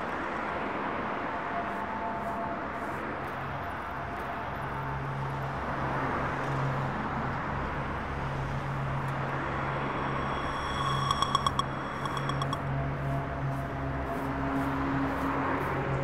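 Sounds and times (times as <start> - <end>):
road traffic noise: 0.0 - 16.0
low engine hum: 3.4 - 16.0.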